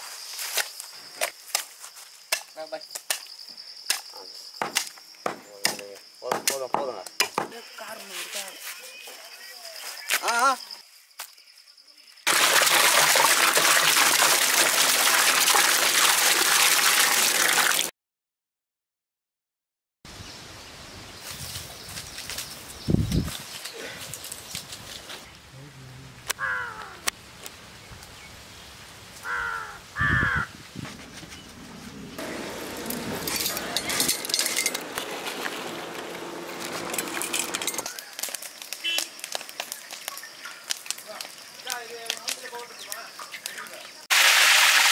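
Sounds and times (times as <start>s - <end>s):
water pouring into metal pot: 12.3s - 17.9s, 44.1s - 44.9s
steel plates and utensils clattering: 32.8s - 35.0s, 36.7s - 37.9s.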